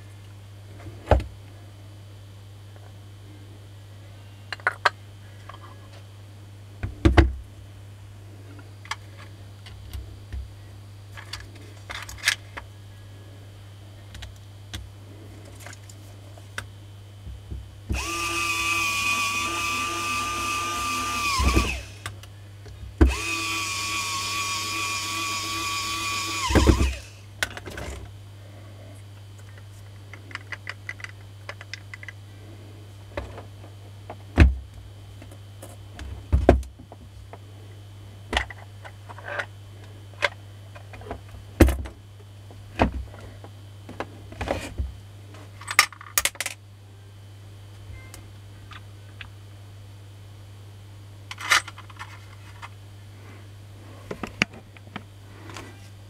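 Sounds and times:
clicks and knocks of tool parts: 4.5 - 5.9, 11.1 - 12.6, 29.4 - 32.2, 45.6 - 46.6, 51.3 - 52.8
polisher motor whine: 17.9 - 22.1, 23.0 - 27.2.

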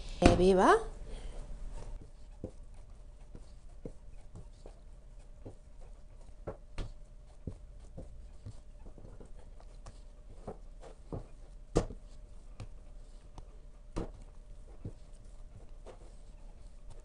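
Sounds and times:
hands kneading dough: 0.0 - 17.0.

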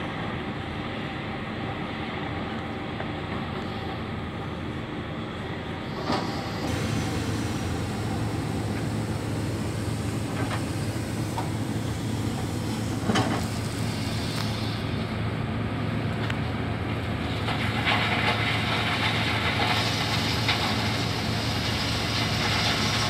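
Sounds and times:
excavator diesel engine droning: 0.0 - 23.0.

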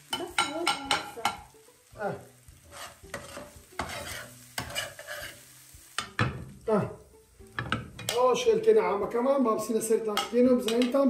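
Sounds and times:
frying pan sizzling: 0.0 - 11.0
metal spatula scraping pan: 2.6 - 6.4.

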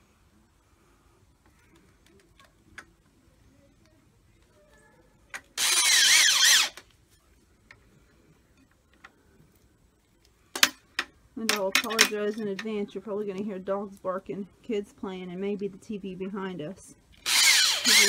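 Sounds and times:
cordless drill motor whine: 5.6 - 6.8, 17.2 - 18.0.

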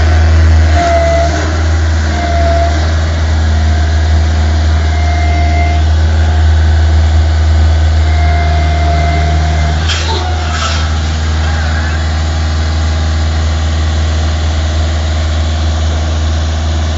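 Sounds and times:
boom lift engine running: 0.0 - 16.9
thin whining tone: 3.6 - 12.9.

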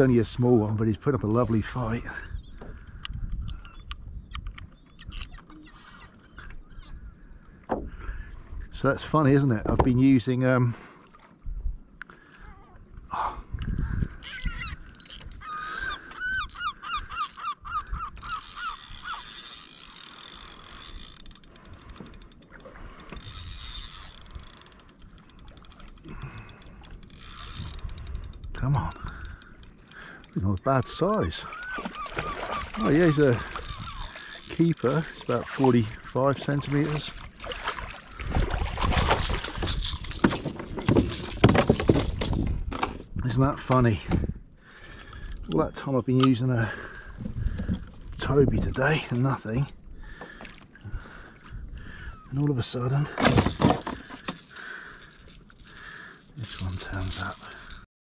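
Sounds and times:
wind rumbling on microphone: 0.0 - 5.4, 11.4 - 19.7, 26.0 - 29.4, 31.8 - 45.6, 47.0 - 50.2
fishing reel clicking: 4.9 - 5.6, 14.2 - 37.0, 39.2 - 40.2, 54.1 - 57.8
gull calling: 4.9 - 7.4, 14.1 - 20.3, 30.7 - 36.1
knocks and rattles on kayak: 7.6 - 8.1, 9.4 - 10.1, 30.4 - 44.4, 47.1 - 49.0, 53.0 - 57.8
water splashing against kayak: 14.4 - 45.2.

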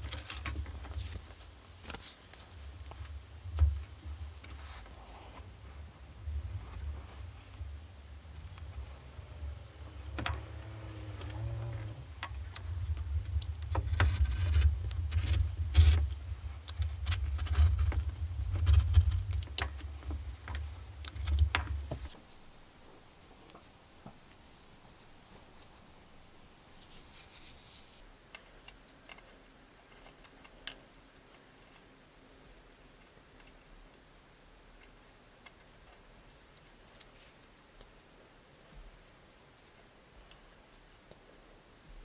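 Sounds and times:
low hum: 5.3 - 19.4
handling ticks: 7.5 - 22.2.

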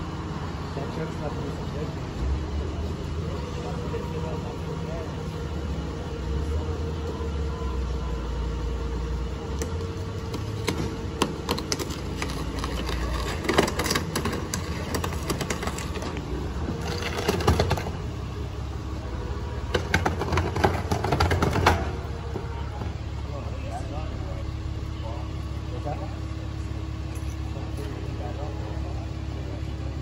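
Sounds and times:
low engine-like hum: 0.0 - 30.0
sharp clicks and clatter: 9.6 - 16.2.

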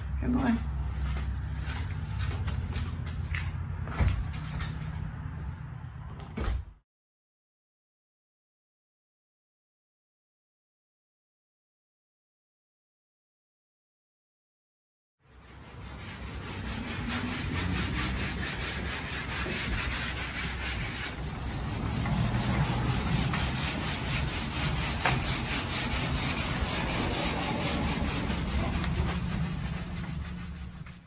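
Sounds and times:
hand sanding wood: 0.4 - 3.4, 15.3 - 31.0.

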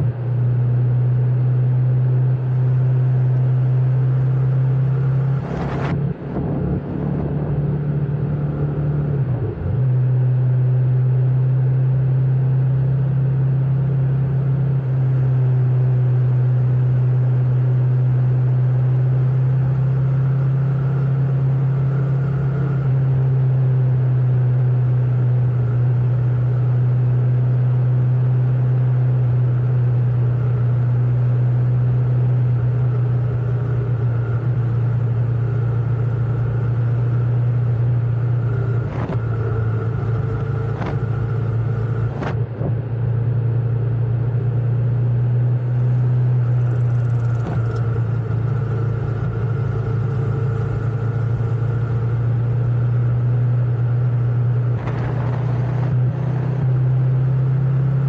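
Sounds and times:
motorcycle engine drone: 0.0 - 58.0
road and wind noise: 0.0 - 58.0.

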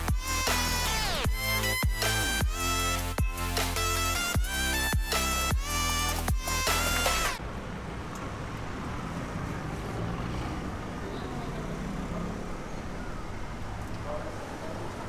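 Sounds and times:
low rumble of traffic: 6.8 - 15.0.

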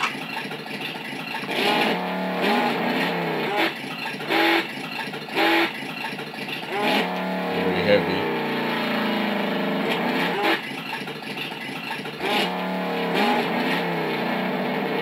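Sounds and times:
electronic engine revving effect: 6.7 - 10.6.

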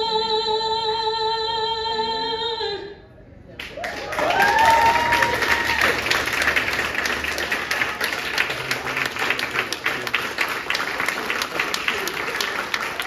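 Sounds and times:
audience applause: 3.7 - 13.0.

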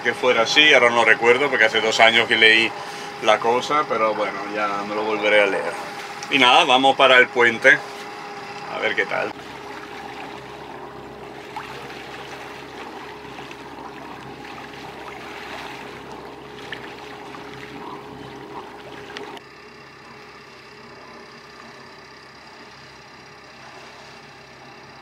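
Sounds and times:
boat engine hum: 0.0 - 25.0
water rushing along hull: 8.4 - 19.4.

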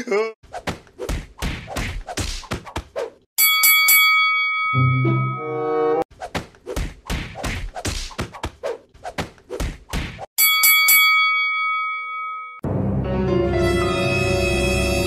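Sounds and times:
boxing bell ringing: 3.4 - 5.6, 10.4 - 12.6
slapping thuds: 6.2 - 10.3.

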